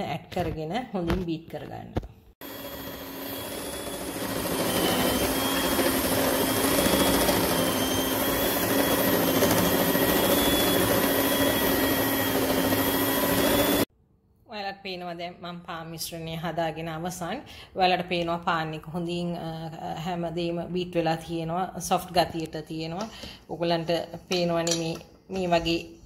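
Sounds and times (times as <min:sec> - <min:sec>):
stand mixer motor whine: 0:02.4 - 0:13.9.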